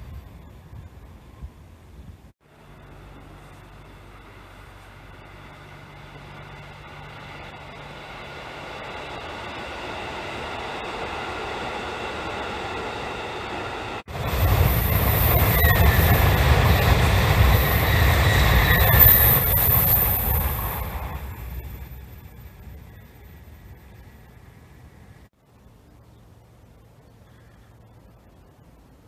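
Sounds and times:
high-speed train rushing past: 2.4s - 25.3s.

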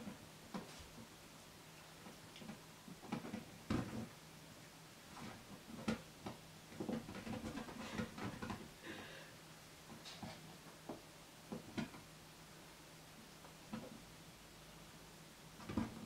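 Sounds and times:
paws tapping on exercise ball: 2.4s - 4.1s, 5.2s - 8.7s.

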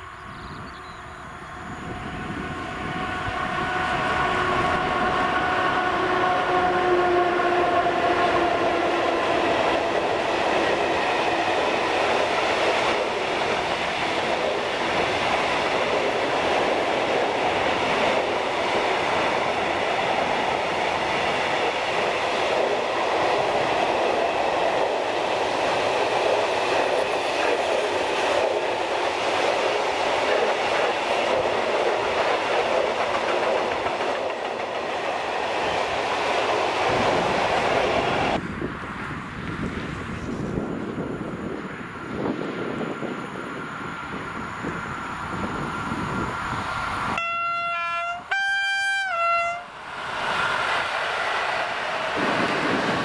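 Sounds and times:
electric locomotive whine: 0.0s - 53.0s
train wagons wheel clatter: 25.9s - 35.4s.

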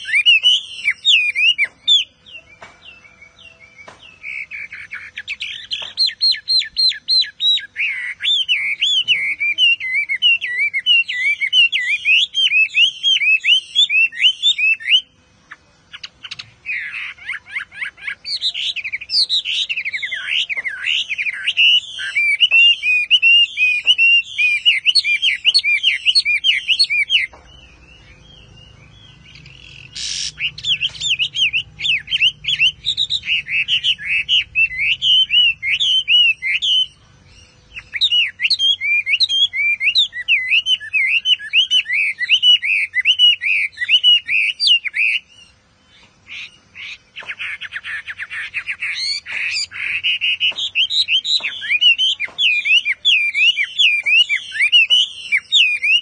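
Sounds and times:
bird singing whistled notes: 0.0s - 56.0s.

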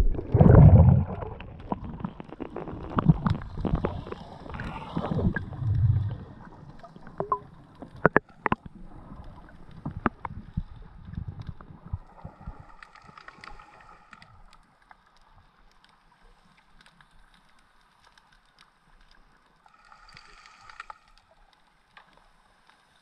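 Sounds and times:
underwater rumble of water movement: 0.0s - 23.0s
faint underwater hiss: 19.6s - 23.0s.

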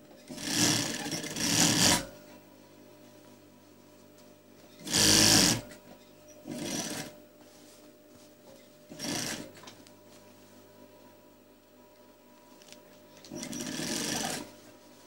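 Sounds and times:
industrial sewing machine stitching: 0.3s - 2.1s, 4.8s - 5.7s, 6.5s - 7.1s, 8.9s - 9.5s, 13.3s - 14.5s.

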